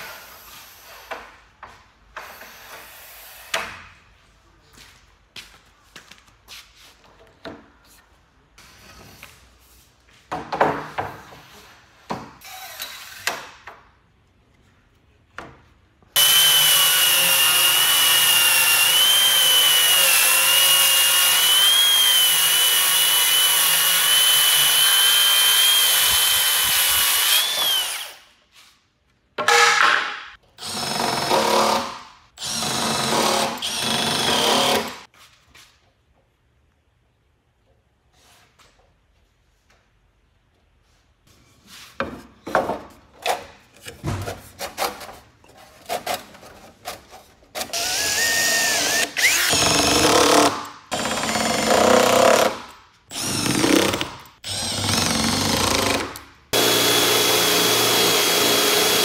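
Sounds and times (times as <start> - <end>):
circular saw cutting wood: 16.2 - 28.2, 47.7 - 59.0
cordless drill boring into wood: 16.2 - 28.2, 32.4 - 35.0, 47.7 - 59.0.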